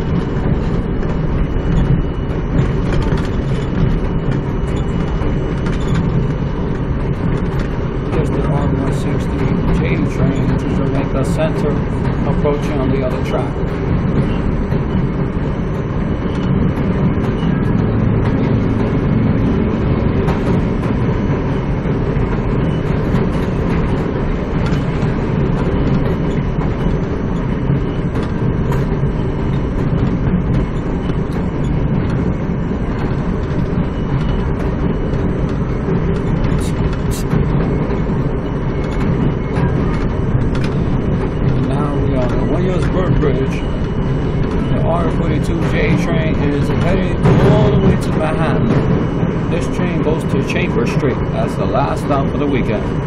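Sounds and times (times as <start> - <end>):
subway train running on track: 0.0 - 53.0.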